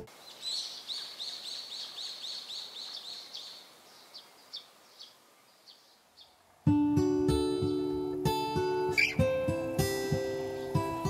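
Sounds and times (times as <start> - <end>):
high chirping call: 0.0 - 6.4, 8.9 - 9.3.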